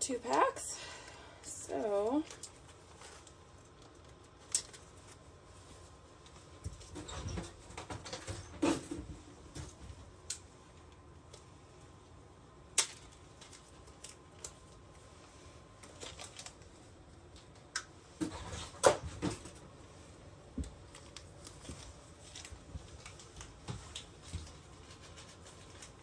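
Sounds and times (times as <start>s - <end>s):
screw packets clicking and crinkling: 1.8s - 5.4s, 12.7s - 15.0s, 15.6s - 17.9s, 20.6s - 26.0s.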